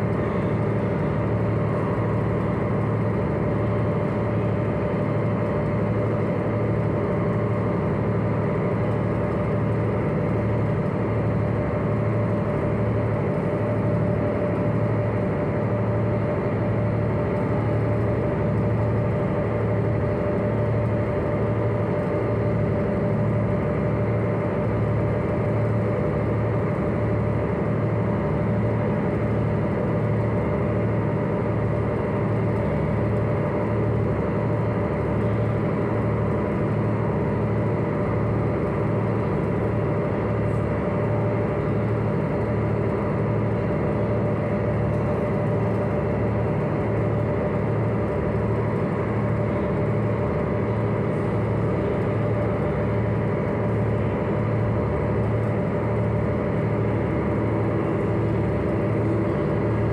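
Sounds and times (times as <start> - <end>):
ship engine drone: 0.0 - 59.9.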